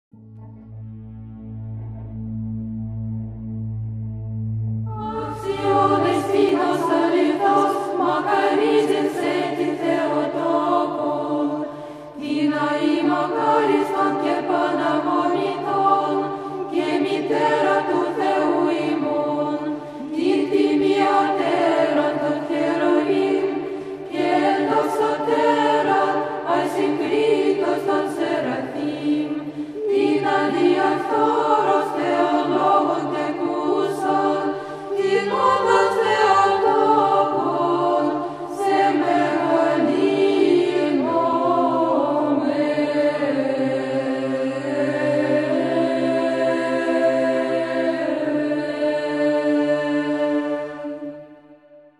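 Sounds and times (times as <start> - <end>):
sustained low drone: 0.2 - 8.0
choir chanting: 4.8 - 51.9.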